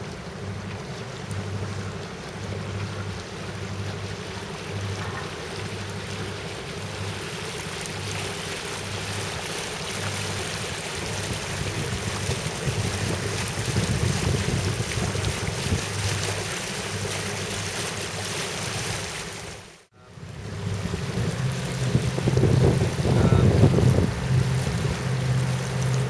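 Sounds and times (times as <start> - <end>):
boat engine droning: 0.0 - 26.0
water moving past hull: 0.0 - 26.0
wind on microphone: 10.9 - 16.2, 20.1 - 26.0.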